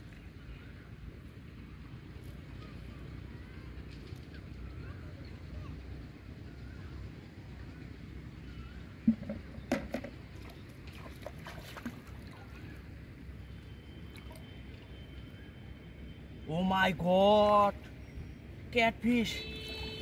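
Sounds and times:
splashing in muddy water: 0:09.1 - 0:12.9, 0:13.7 - 0:15.1
sharp splashes: 0:10.3 - 0:12.6, 0:14.0 - 0:14.9.

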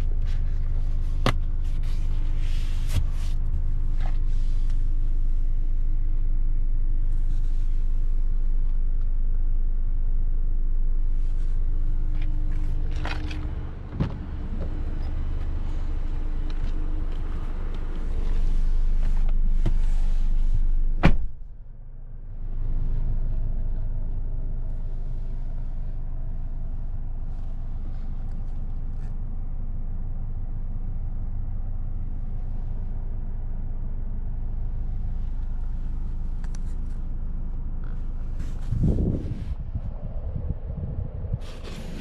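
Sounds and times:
car engine and road noise: 0:00.0 - 0:42.0
short thump: 0:13.0 - 0:14.8, 0:21.0 - 0:21.4.

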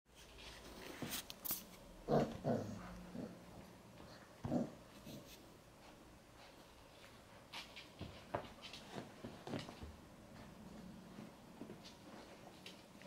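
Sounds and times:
quiet rustling: 0:00.1 - 0:13.0
puppy noises and scuffles: 0:00.2 - 0:13.0.

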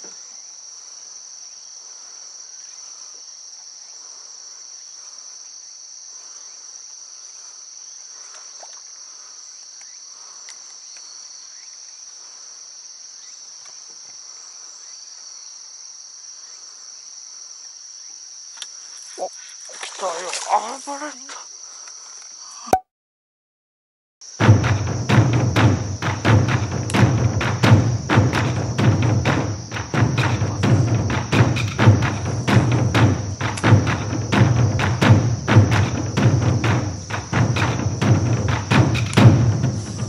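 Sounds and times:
insects chorus: 0:00.0 - 0:22.7, 0:24.2 - 0:40.0
sharp loud sounds: 0:24.4 - 0:40.0.

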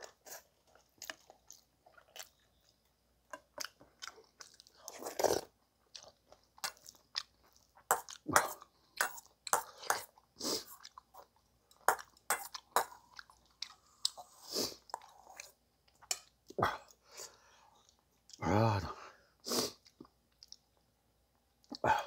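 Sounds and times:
man chewing food: 0:00.0 - 0:18.4, 0:19.6 - 0:22.0.

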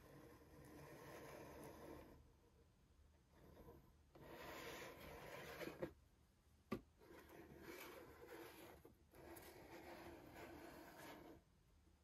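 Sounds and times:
cardboard box rubbing and sliding: 0:03.4 - 0:05.9.

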